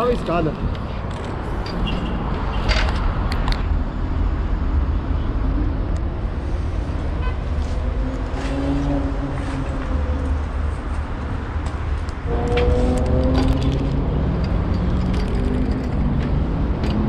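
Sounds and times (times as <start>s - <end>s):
city traffic rumble: 0.0s - 17.0s
engine hum: 0.8s - 17.0s.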